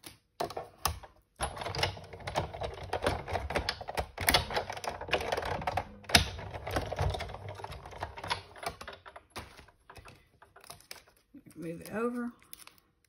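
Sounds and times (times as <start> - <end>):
clicking and tapping of paper: 2.6 - 11.2.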